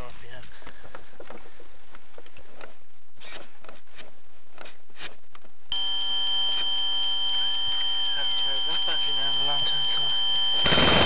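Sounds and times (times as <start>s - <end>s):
high-pitched electronic buzz: 5.7s - 11.0s.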